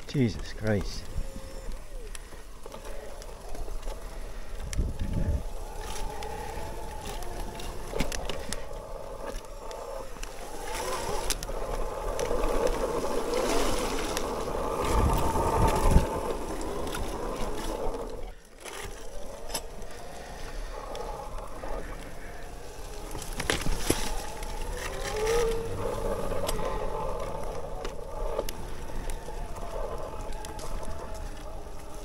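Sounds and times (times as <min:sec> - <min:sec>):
wind buffeting microphone: 0:00.0 - 0:18.4
electric bike motor whining: 0:00.0 - 0:32.0.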